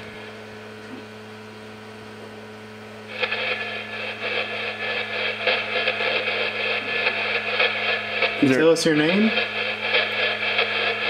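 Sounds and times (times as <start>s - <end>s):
steady electrical hum: 0.0s - 11.0s
choppy bursts of radio static: 3.0s - 11.0s.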